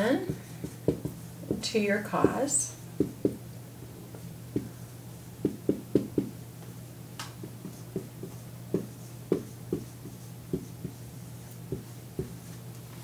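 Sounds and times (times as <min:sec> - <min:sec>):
steady low hum: 0:00.0 - 0:13.0
hands knocking on desk: 0:03.0 - 0:03.4, 0:04.5 - 0:04.7, 0:05.4 - 0:06.4, 0:07.4 - 0:11.0.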